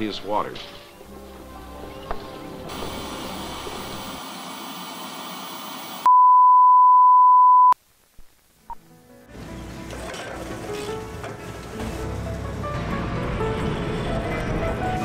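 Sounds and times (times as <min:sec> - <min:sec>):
static hiss: 0:02.7 - 0:06.1, 0:07.8 - 0:08.9.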